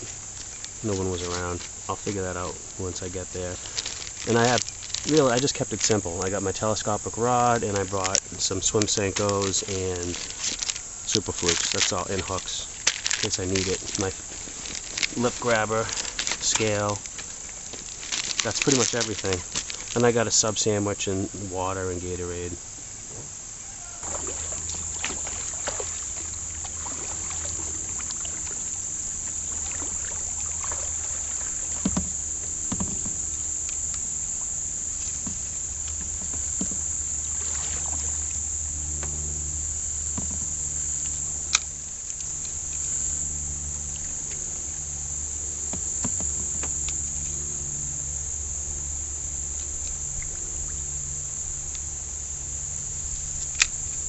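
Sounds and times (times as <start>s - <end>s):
insects chorus: 0.0s - 54.0s
kayak paddle swishes: 24.0s - 33.3s, 34.9s - 38.4s.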